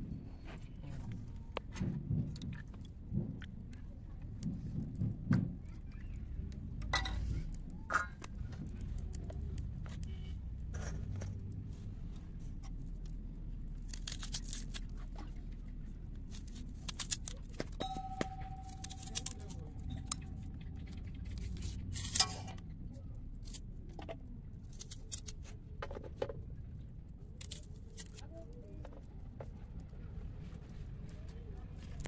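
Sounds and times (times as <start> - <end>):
low steady rumble: 0.0 - 25.8
steady high tone: 17.8 - 21.0.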